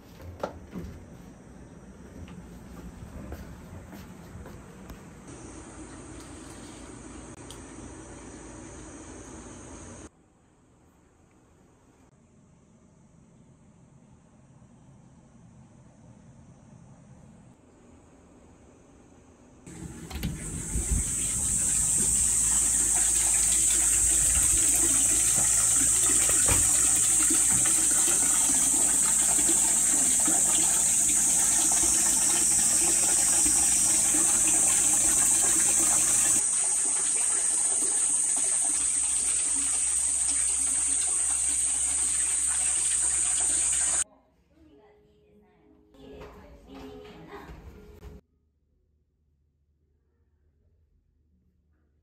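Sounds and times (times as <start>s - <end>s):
water pouring into tub: 19.7s - 44.0s.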